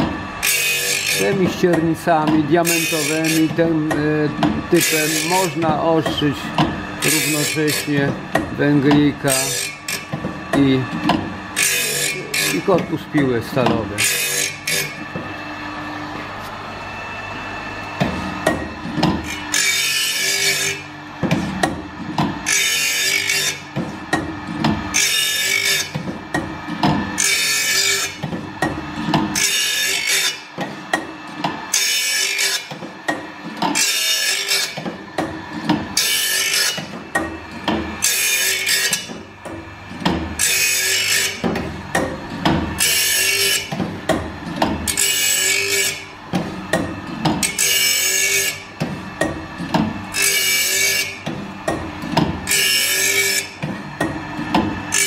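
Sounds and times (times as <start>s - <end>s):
grinding wheel hissing on saw teeth: 0.0s - 15.1s, 18.5s - 21.2s, 22.4s - 26.4s, 27.1s - 30.5s, 31.3s - 36.9s, 37.5s - 39.2s, 40.4s - 41.4s, 42.7s - 43.7s, 44.9s - 46.1s, 47.4s - 48.7s, 50.1s - 51.2s, 52.4s - 53.6s
machine knocks: 3.5s - 4.7s, 5.6s - 6.9s, 8.0s - 9.2s, 10.1s - 11.4s, 18.0s - 19.3s, 21.2s - 22.4s, 23.7s - 24.9s, 25.9s - 27.2s, 28.2s - 29.4s, 34.8s - 36.0s, 36.8s - 38.0s, 39.1s - 40.4s, 41.4s - 42.8s, 43.7s - 44.9s, 46.3s - 47.4s, 51.2s - 52.5s, 53.6s - 54.8s.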